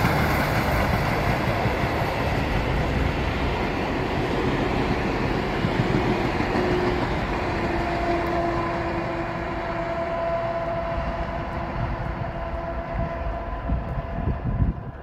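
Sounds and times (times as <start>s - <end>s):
train rumbling on rails: 0.0s - 15.0s.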